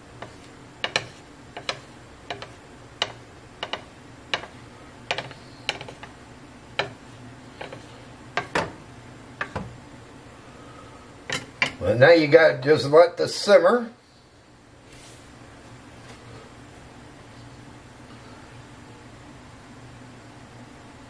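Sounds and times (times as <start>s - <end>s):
wooden spatula knocking pot: 0.2s - 6.1s, 6.8s - 8.8s, 9.4s - 9.7s.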